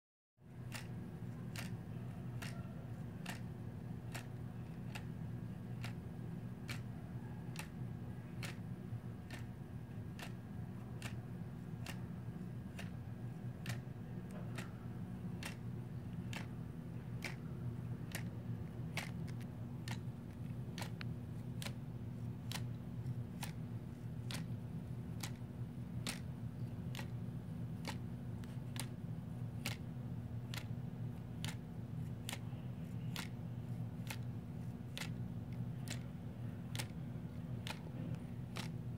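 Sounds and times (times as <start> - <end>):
clock ticking: 0.6 - 1.8, 3.2 - 5.2, 5.8 - 6.0, 6.6 - 7.8, 8.4 - 14.8, 15.4 - 16.5, 17.1 - 20.0, 26.0 - 26.3.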